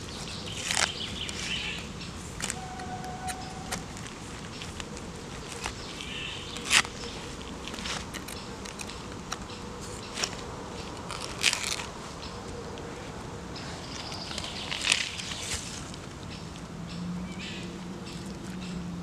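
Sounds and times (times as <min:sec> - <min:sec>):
knife crunching pineapple rind: 0:00.5 - 0:01.6, 0:03.2 - 0:12.0.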